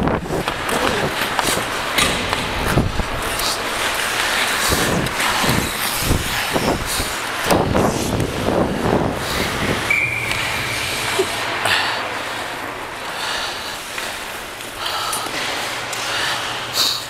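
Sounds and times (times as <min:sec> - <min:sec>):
skates scraping ice: 0:00.2 - 0:14.4
hockey sticks clacking: 0:00.3 - 0:08.4
referee whistle: 0:09.9 - 0:10.6.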